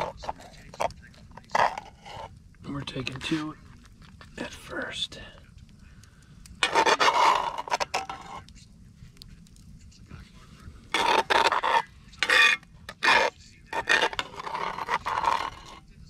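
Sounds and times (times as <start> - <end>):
metal spatula scraping cast iron: 0.0 - 2.4, 6.6 - 8.5, 10.9 - 15.9.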